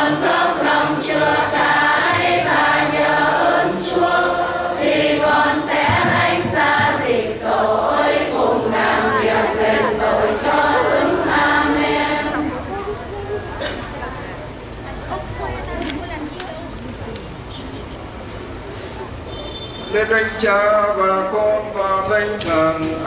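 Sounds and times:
choir singing a hymn: 0:00.0 - 0:13.1.

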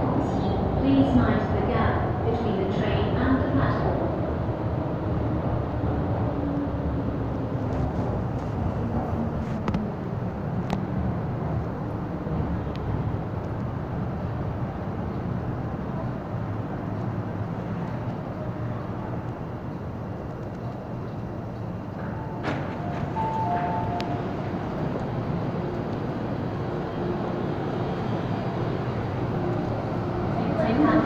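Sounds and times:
train rumbling and humming: 0:00.0 - 0:31.0
faint clicks: 0:20.3 - 0:22.7.

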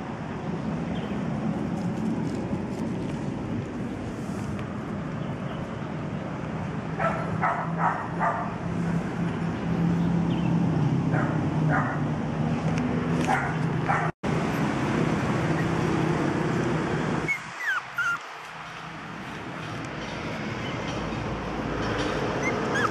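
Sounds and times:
puppies yipping: 0:17.2 - 0:18.3, 0:22.1 - 0:22.9.

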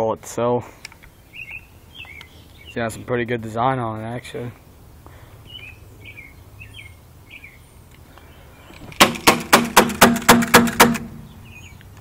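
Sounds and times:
airsoft pistol shots: 0:09.0 - 0:11.3.

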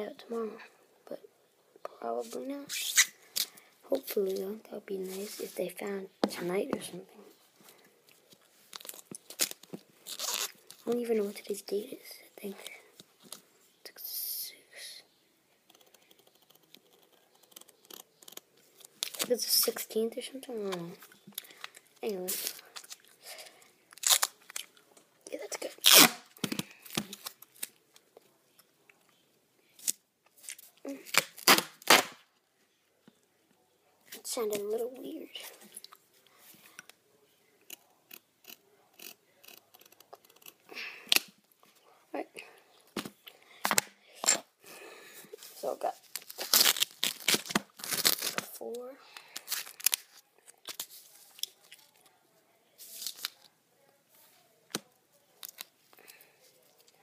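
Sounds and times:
duct tape ripping: 0:02.7 - 0:03.5, 0:08.7 - 0:10.9, 0:23.9 - 0:24.7, 0:25.8 - 0:27.8, 0:29.8 - 0:32.2, 0:46.1 - 0:48.5.

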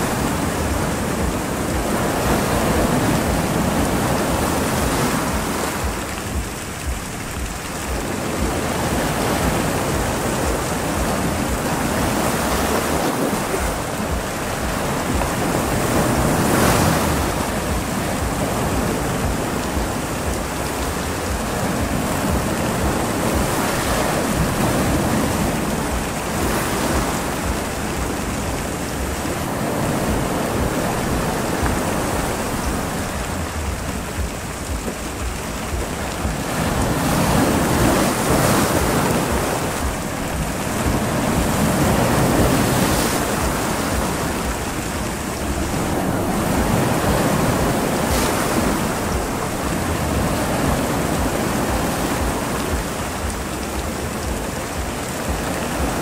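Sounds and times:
heavy rain: 0:00.0 - 0:56.0
wind buffeting microphone: 0:00.0 - 0:56.0.

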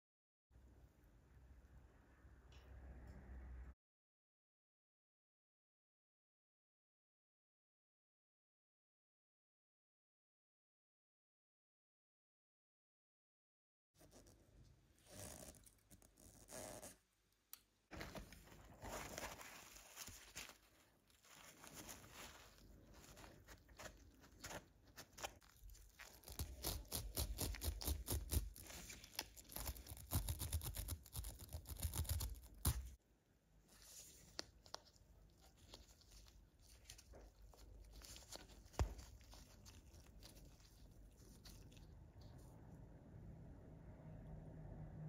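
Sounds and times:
gloved hands rustling: 0:17.9 - 0:30.9, 0:33.7 - 0:42.0.

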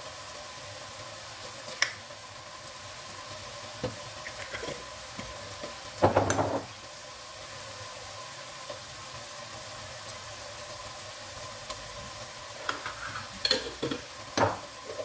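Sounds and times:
onions sizzling in hot oil: 0:00.0 - 0:15.0.

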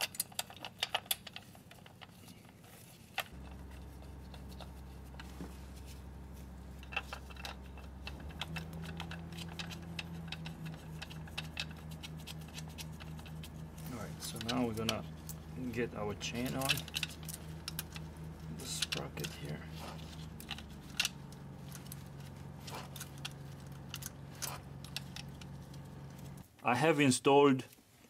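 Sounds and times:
steady low hum: 0:00.2 - 0:26.5
metal tools clicking and clinking: 0:06.7 - 0:26.4.

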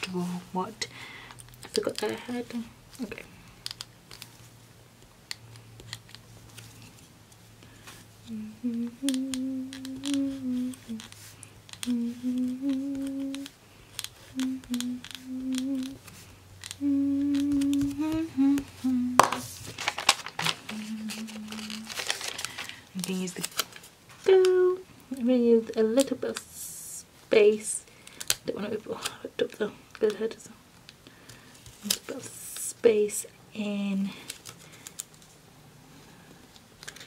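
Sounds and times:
woman humming: 0:08.2 - 0:11.1, 0:11.8 - 0:13.6, 0:14.2 - 0:16.1, 0:16.8 - 0:19.6, 0:20.4 - 0:22.1, 0:24.3 - 0:27.5
correction tape clicks on paper: 0:09.0 - 0:18.2.

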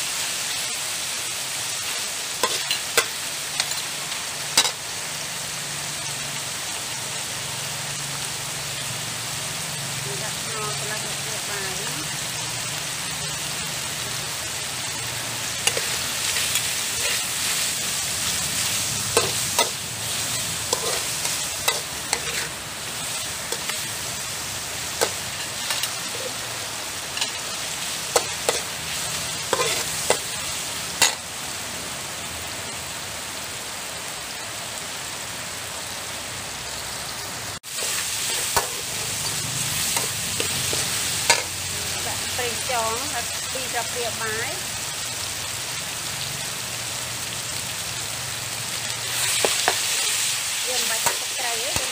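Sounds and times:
meat sizzling in a wok: 0:00.0 - 0:51.9
metal spatula scraping a pan: 0:15.6 - 0:17.8, 0:18.6 - 0:24.1, 0:25.0 - 0:26.5, 0:27.2 - 0:30.4.

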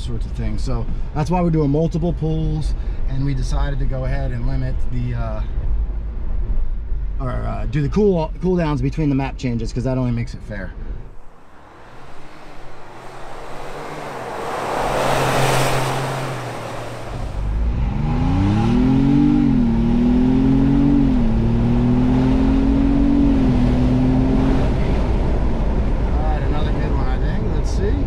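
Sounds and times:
vehicle passing by: 0:11.1 - 0:26.9
engine under full acceleration: 0:11.2 - 0:27.2.

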